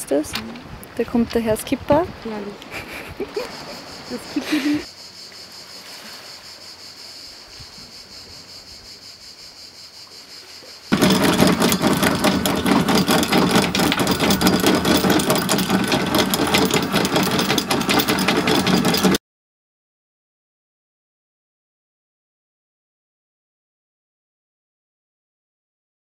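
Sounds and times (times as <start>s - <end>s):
insects chirping: 2.8s - 11.0s
anchor chain clattering: 10.9s - 19.2s
anchor windlass motor running: 10.9s - 19.2s.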